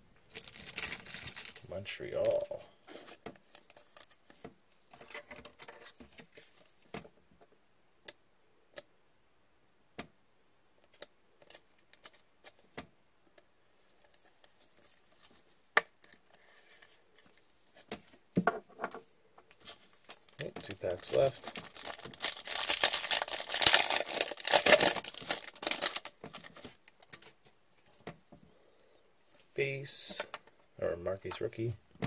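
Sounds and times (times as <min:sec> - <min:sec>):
rustling: 0:00.2 - 0:07.1, 0:13.6 - 0:30.2.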